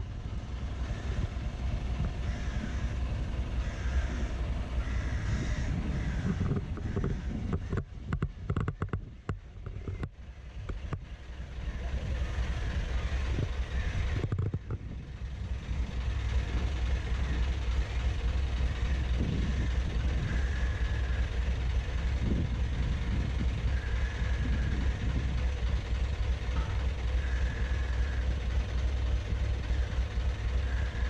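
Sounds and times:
diesel engine humming: 0.0 - 31.0
sharp clicks and knocks: 6.4 - 11.1, 14.2 - 14.8.

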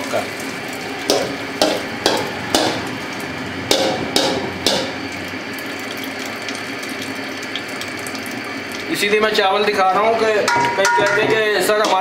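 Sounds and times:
metal strainer clanking on pot: 10.4 - 12.0.

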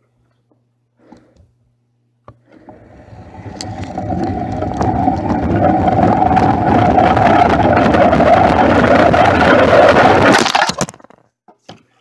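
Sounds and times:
toy car wheels whirring and rolling: 2.5 - 11.0.

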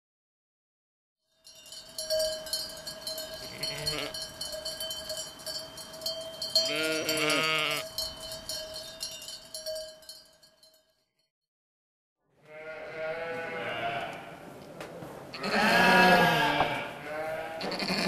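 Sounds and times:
sheep bells clinking: 1.3 - 11.2
sheep bleating: 3.4 - 4.2, 6.7 - 7.8, 12.4 - 14.4, 15.3 - 18.0.

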